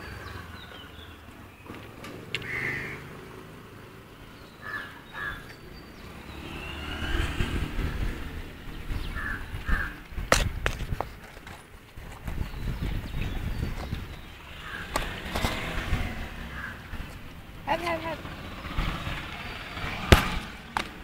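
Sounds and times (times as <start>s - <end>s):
crows cawing: 2.4s - 3.1s, 4.6s - 5.6s, 9.1s - 10.0s, 14.6s - 15.0s, 16.4s - 17.0s.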